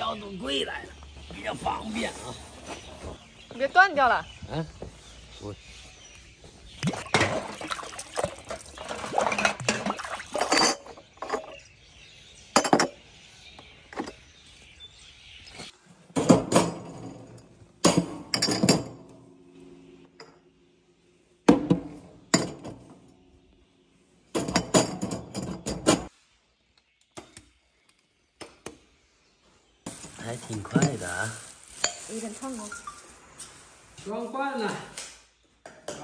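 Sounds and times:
glass jars clinking in water: 7.0 - 11.7, 18.3 - 19.0, 30.6 - 33.0
jars set on wire racks: 29.9 - 32.9.

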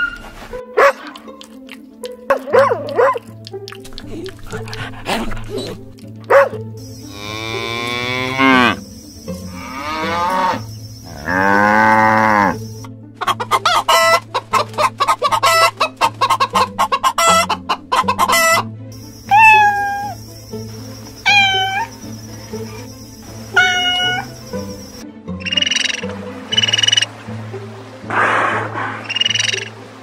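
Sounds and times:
cow mooing: 7.0 - 8.8, 9.4 - 12.6
chicken clucking: 13.2 - 27.0
cat meowing: 19.3 - 20.2, 21.2 - 21.9, 23.6 - 24.2.

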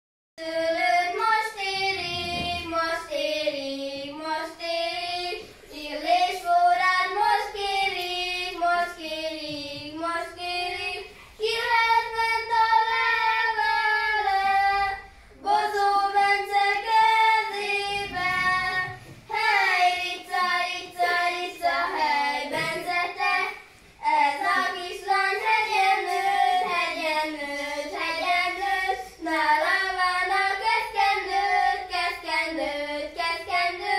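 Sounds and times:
children singing: 0.4 - 33.9.

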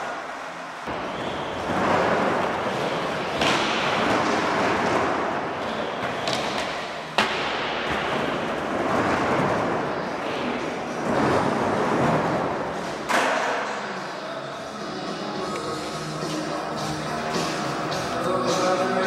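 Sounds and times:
skateboard wheels rolling: 0.0 - 13.4.

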